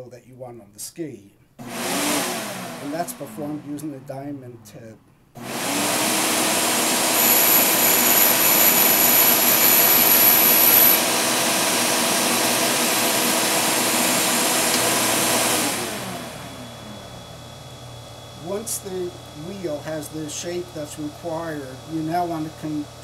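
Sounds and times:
motor spinning down: 0:01.6 - 0:23.0
grinding wheel spinning with hiss: 0:05.4 - 0:23.0.

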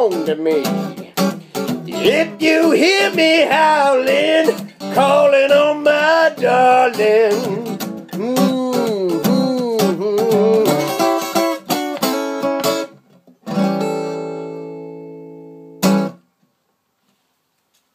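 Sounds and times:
man singing wordlessly: 0:00.0 - 0:11.4
strummed acoustic guitar: 0:00.0 - 0:16.2.

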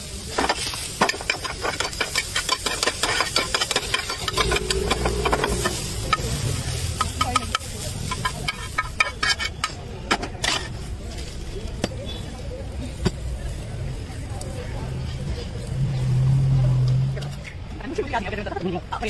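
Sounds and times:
metal spoon scraping steel pan: 0:01.1 - 0:06.3.

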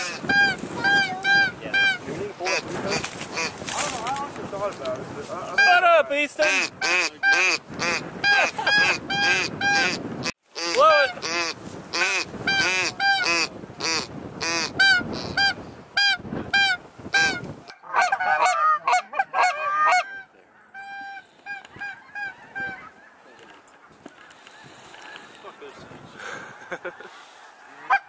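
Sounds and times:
geese honking: 0:00.0 - 0:03.9, 0:06.4 - 0:10.0, 0:10.6 - 0:25.8, 0:26.6 - 0:28.0
goose call honks: 0:00.0 - 0:03.9, 0:06.4 - 0:10.0, 0:10.6 - 0:23.1, 0:27.8 - 0:28.0.

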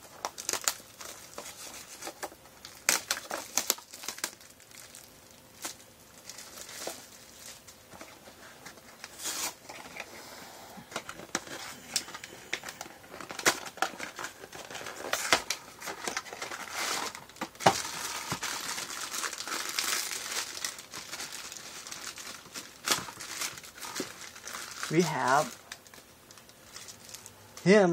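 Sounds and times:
plastic bag crinkling: 0:00.0 - 0:10.2, 0:10.8 - 0:27.7
cardboard box tearing: 0:13.2 - 0:21.2.

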